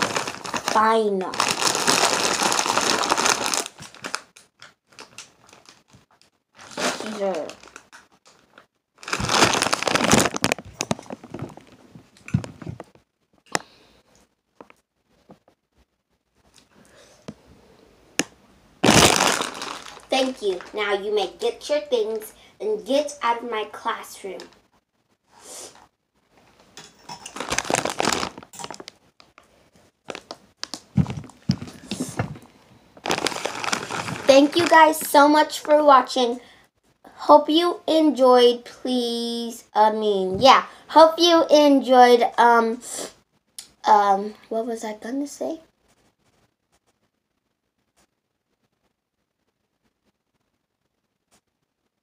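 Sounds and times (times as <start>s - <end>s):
chip bag crinkling: 0.0s - 11.8s, 18.8s - 20.8s, 27.0s - 32.4s, 33.0s - 35.7s.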